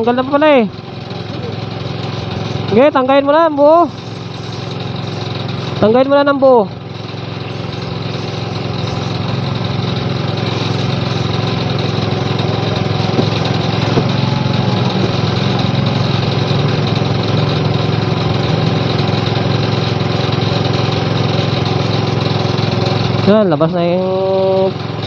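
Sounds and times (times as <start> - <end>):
water pump engine running: 0.0 - 25.0.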